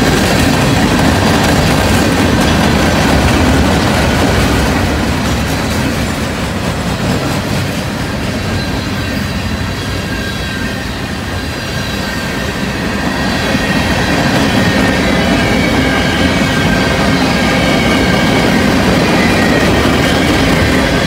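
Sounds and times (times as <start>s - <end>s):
steel wheels rumbling on rails: 0.0s - 21.0s
faint high wheel squeal: 8.3s - 21.0s.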